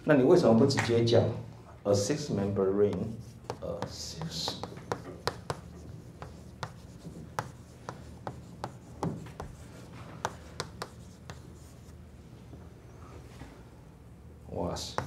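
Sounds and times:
chalk tapping and scraping on blackboard: 2.9 - 12.0, 14.8 - 15.0.

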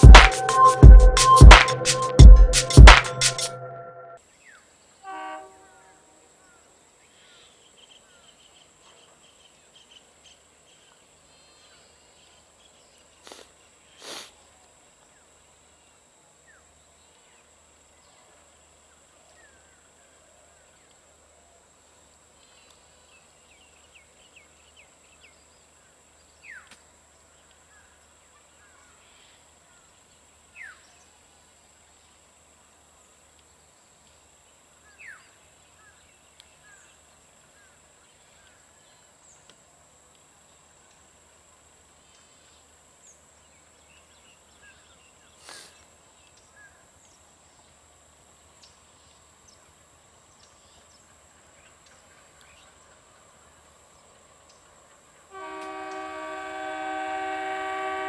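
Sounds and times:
bird chirps and warbles: 4.3 - 5.0, 6.4 - 14.0
insect buzz: 13.1 - 14.5, 53.4 - 58.0.

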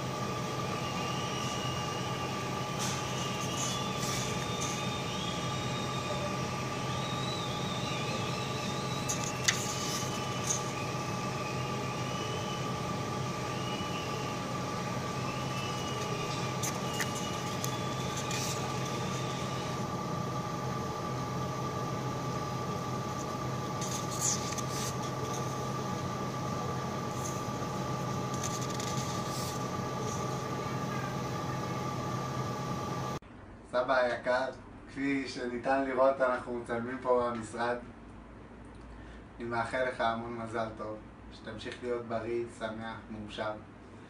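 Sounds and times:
mechanical hum with whine: 0.0 - 44.0
paper sheets rustling: 8.8 - 10.8, 15.4 - 19.8, 23.6 - 25.7, 28.1 - 30.4.

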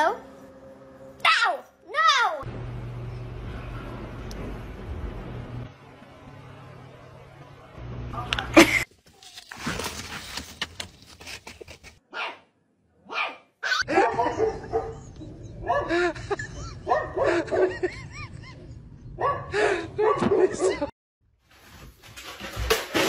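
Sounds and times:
dog barking and whining: 12.1 - 15.9.

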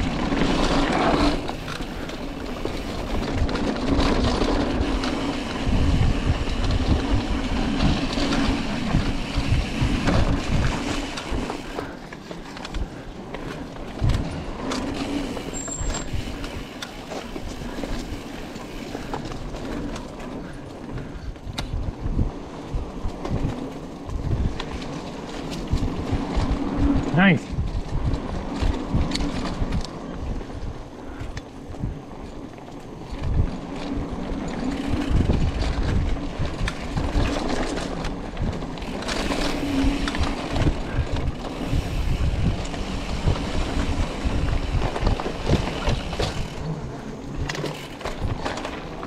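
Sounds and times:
bicycle tyres rumbling on dirt: 0.0 - 49.0
bike knocking and rattling: 0.0 - 49.0.

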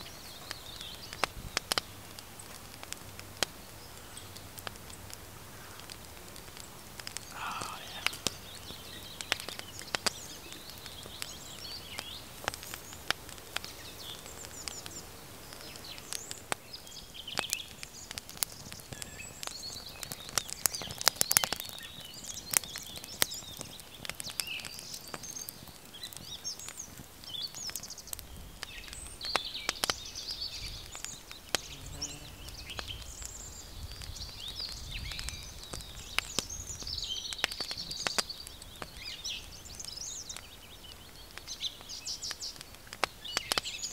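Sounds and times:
birds chirping: 0.0 - 43.9
wood fire crackling and popping: 0.0 - 43.9
low rumble of wind: 32.3 - 41.6.

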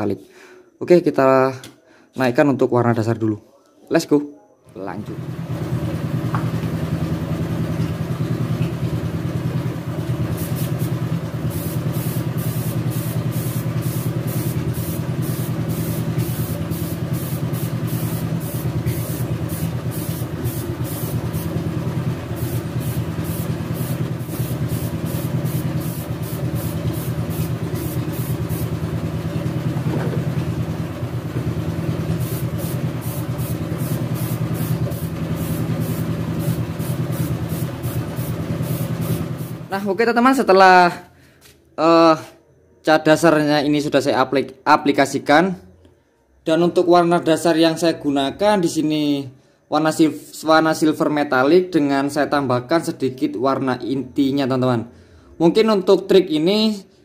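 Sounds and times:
air compressor humming: 5.0 - 40.2
spray gun pulsing air hiss: 10.2 - 29.4, 31.8 - 39.8.

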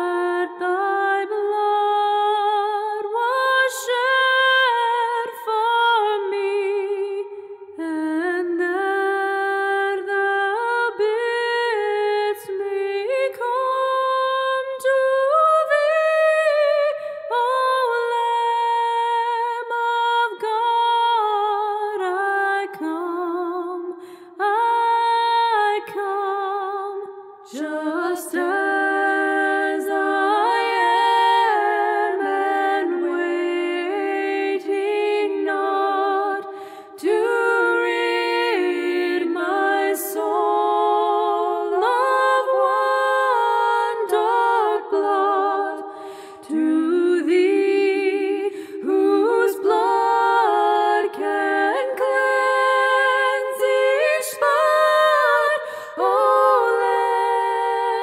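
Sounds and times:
unaccompanied singing voices: 27.5 - 58.0.

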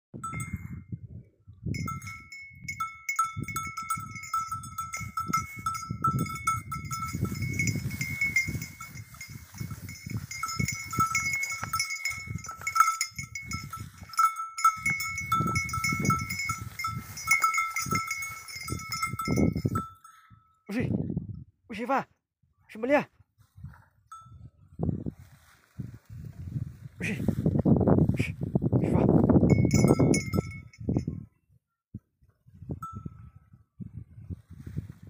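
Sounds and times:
hooves scuffling: 1.9 - 19.9.

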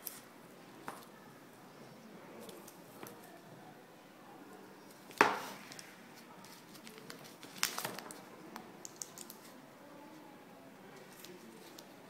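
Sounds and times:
clicks and paper rustles: 5.0 - 8.2.

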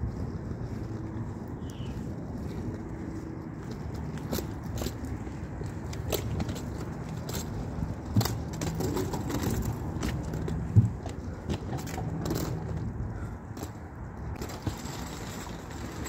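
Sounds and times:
footsteps: 0.0 - 16.0
wheeled suitcases rolling: 0.0 - 16.0
small clicks and rattles: 5.9 - 12.9.

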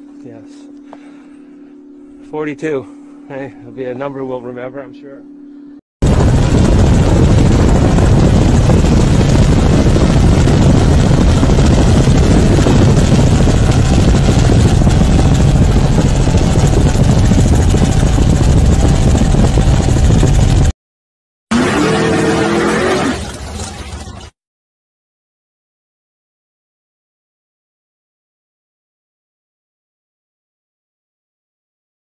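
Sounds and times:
truck engine running hard: 6.0 - 20.7.

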